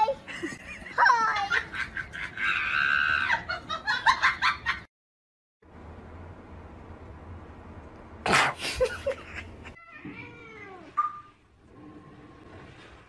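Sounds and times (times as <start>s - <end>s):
cat meowing: 9.8s - 11.3s.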